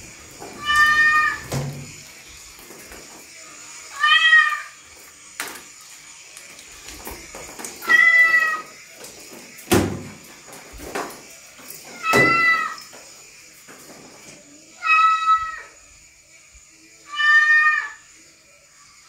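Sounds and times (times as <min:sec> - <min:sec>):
cat meowing: 0:00.6 - 0:01.5, 0:03.9 - 0:04.8, 0:07.8 - 0:08.7, 0:12.0 - 0:12.8, 0:14.8 - 0:15.7, 0:17.1 - 0:18.0.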